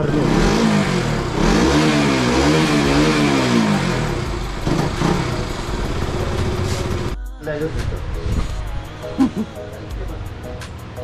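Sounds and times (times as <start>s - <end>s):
motorcycle engine revving: 0.0s - 7.2s.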